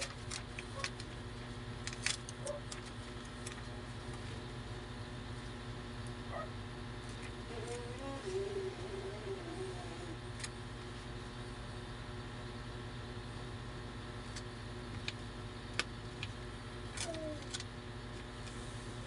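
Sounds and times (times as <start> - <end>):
low background hum: 0.0 - 19.0
wallpaper crackling: 7.0 - 11.0.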